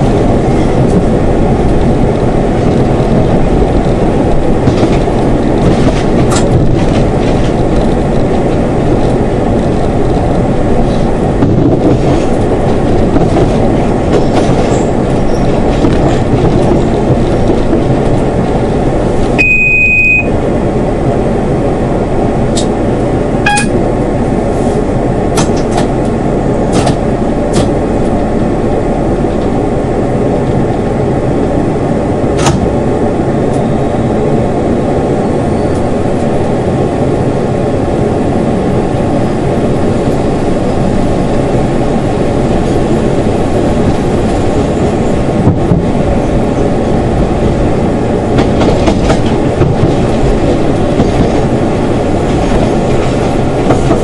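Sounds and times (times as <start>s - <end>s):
diesel train engine running: 0.0s - 54.0s
wheels rumbling on rail: 0.0s - 54.0s
brief high beep: 19.4s - 20.3s, 23.5s - 23.8s.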